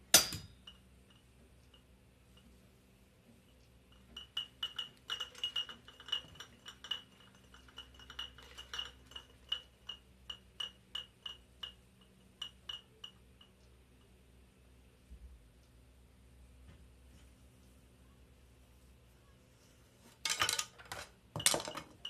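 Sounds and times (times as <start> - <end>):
high ringing clinks: 4.0 - 13.2.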